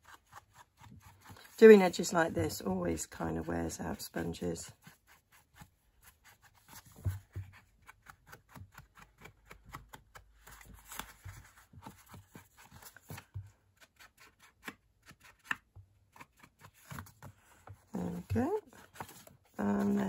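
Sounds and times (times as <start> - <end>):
paper rustling: 5.6 - 20.0.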